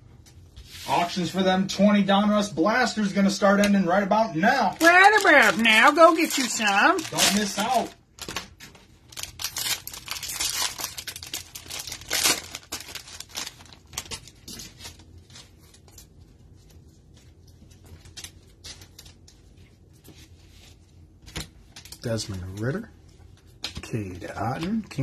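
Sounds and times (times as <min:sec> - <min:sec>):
cellophane crinkling and tearing: 0:04.6 - 0:20.1.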